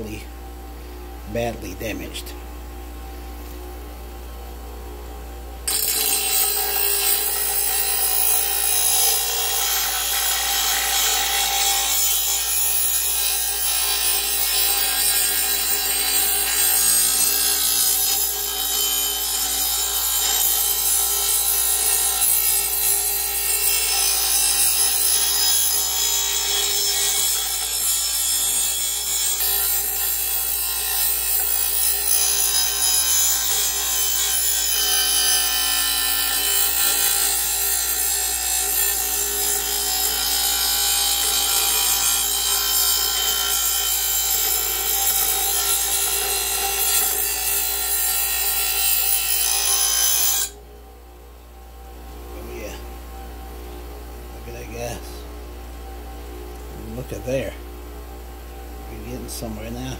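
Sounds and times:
grinder motor hum: 0:00.0 - 0:50.7
grinding metal on stone: 0:05.7 - 0:50.6.

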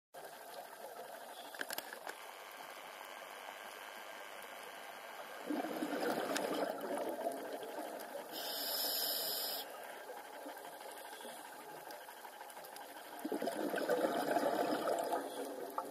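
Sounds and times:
steady underwater hiss: 0:00.2 - 0:15.9
bubbling exhalation underwater: 0:05.4 - 0:07.9, 0:13.2 - 0:15.9
regulator inhalation hiss: 0:08.3 - 0:09.9.

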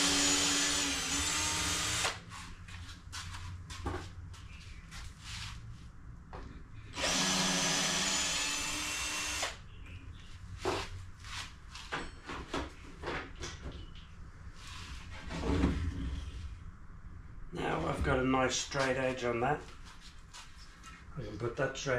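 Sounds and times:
cordless drill whining: 0:00.0 - 0:02.2, 0:07.0 - 0:09.6.

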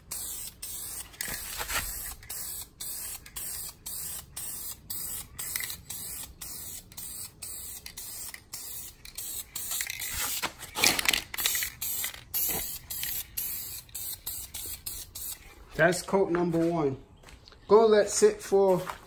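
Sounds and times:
aerosol spray hissing: 0:00.0 - 0:10.5, 0:11.8 - 0:15.5
scuffing rustle: 0:01.3 - 0:02.0, 0:15.5 - 0:17.4, 0:18.4 - 0:19.0.

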